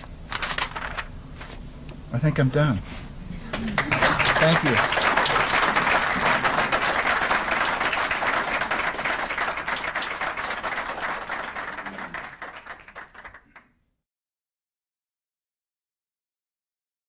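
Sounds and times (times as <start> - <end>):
audience applauding: 3.5 - 13.7.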